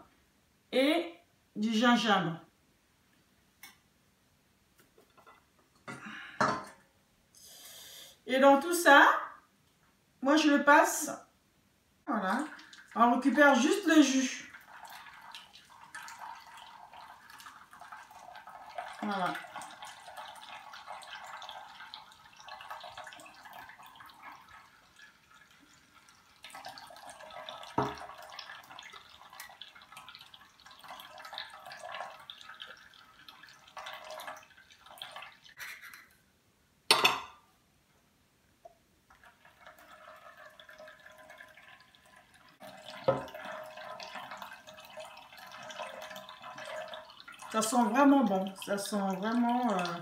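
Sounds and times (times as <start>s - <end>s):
juice dripping into bowl: 12.4s - 35.6s, 38.6s - 50.0s.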